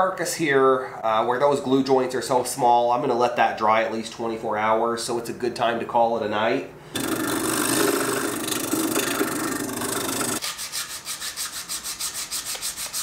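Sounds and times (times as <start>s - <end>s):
drill press boring into wood: 7.0s - 10.4s
wood hand-sanding strokes: 10.3s - 13.0s.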